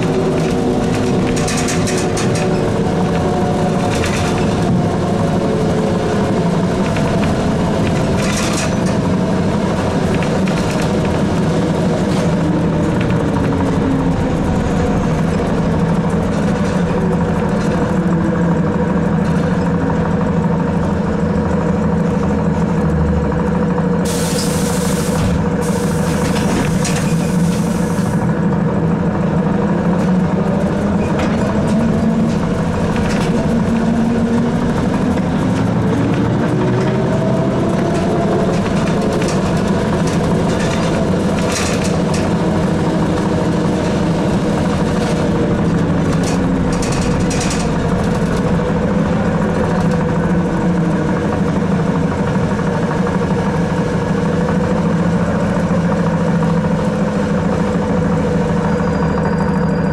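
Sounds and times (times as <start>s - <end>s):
trolleybus electrical hum: 0.0s - 59.9s
hiss: 24.1s - 26.3s.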